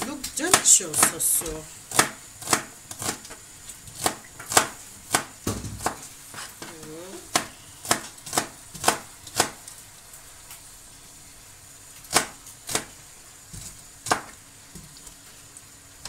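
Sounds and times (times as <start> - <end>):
knife slicing onion: 0.4 - 9.6, 14.0 - 14.4
knife knocking on cutting board: 4.6 - 6.0.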